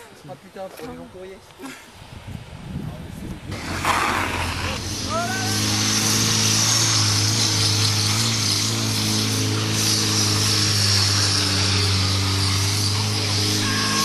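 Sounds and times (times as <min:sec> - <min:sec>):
motorcycle engine running: 0:03.6 - 0:14.0.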